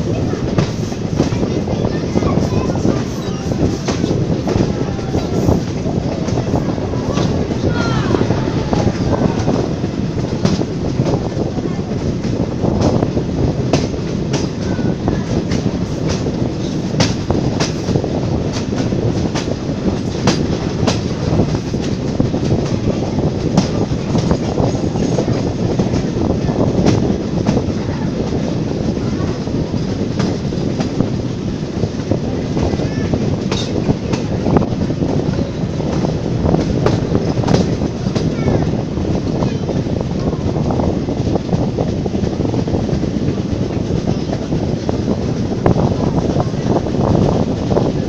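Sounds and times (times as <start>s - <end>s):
rail joint clicks and clatter: 0.0s - 48.0s
train wheels rumbling on track: 0.0s - 48.0s.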